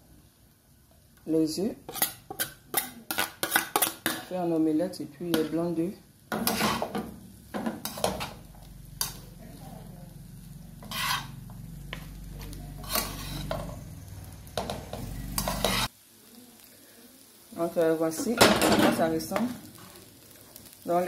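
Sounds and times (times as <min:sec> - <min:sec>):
spatula and spoon scraping a pan: 0:01.7 - 0:09.4, 0:10.7 - 0:15.9.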